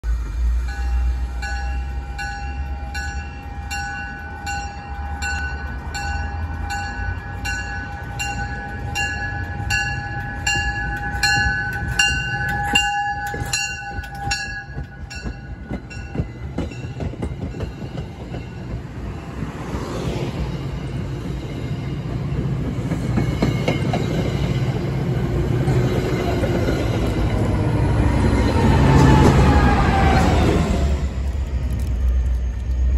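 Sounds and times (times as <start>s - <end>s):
diesel train rumble: 0.0s - 32.9s
train bell ringing: 0.4s - 18.8s, 20.6s - 29.2s
wheels clicking over rail joints: 2.2s - 20.1s.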